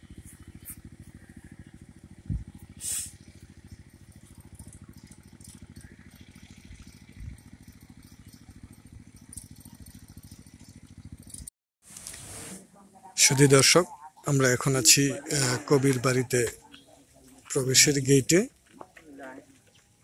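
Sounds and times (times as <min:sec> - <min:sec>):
small engine chugging: 0:00.0 - 0:11.5.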